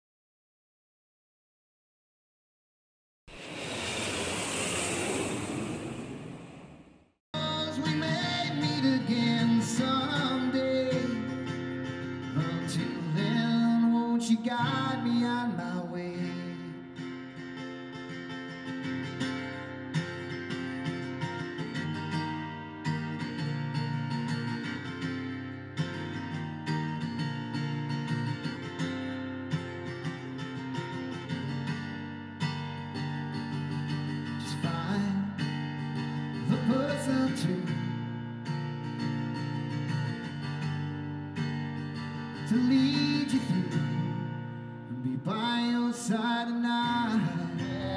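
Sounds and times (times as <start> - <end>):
man singing: 7.4 - 11.4, 12.3 - 16.8, 34.4 - 35.5, 36.4 - 37.8, 42.4 - 44.2, 44.9 - 47.9
strummed acoustic guitar: 7.4 - 47.9.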